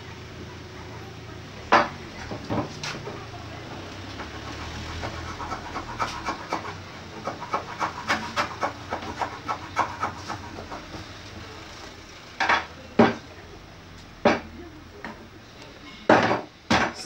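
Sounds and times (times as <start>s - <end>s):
scraping along wooden board: 4.1s - 11.8s.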